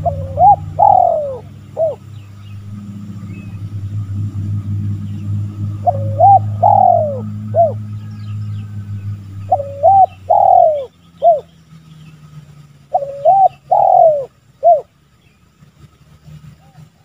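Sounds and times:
dove cooing: 0.0s - 11.5s, 12.9s - 14.9s
low rumble: 0.0s - 12.6s.

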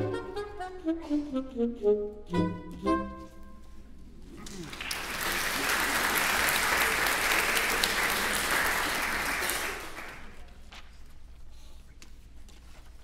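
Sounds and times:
audience applauding: 4.4s - 10.5s.

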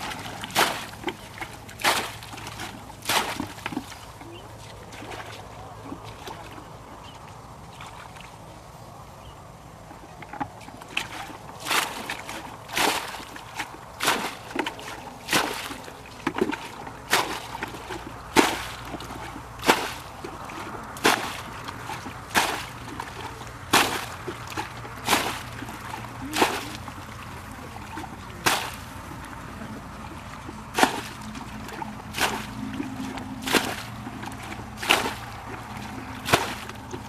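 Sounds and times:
water splashing from bucket: 0.0s - 6.6s, 10.4s - 37.0s
bucket sloshing water: 0.0s - 8.5s, 10.0s - 37.0s.

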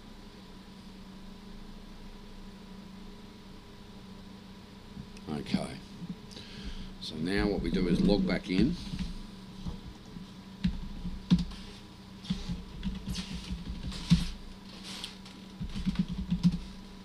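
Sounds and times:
computer keyboard keystrokes: 10.6s - 11.6s, 15.6s - 16.7s.

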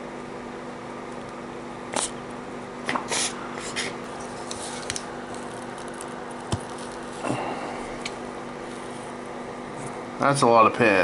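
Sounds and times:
desoldering bulb hissing puffs: 3.0s - 9.8s.

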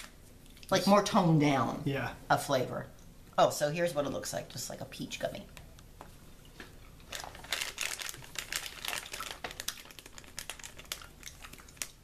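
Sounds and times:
plastic snack pouch crinkling: 7.0s - 12.0s.

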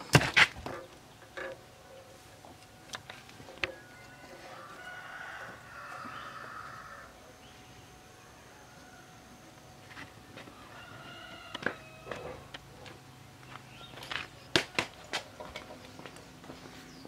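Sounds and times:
rooster crowing: 3.6s - 7.3s, 8.3s - 9.4s, 10.4s - 12.5s.

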